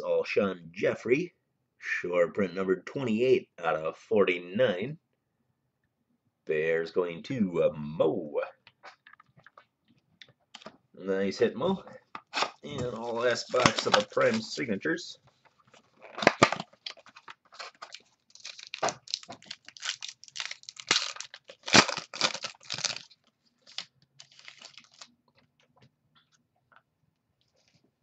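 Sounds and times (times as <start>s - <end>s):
packaging crinkling and tearing: 12.4s - 14.6s, 15.7s - 25.7s.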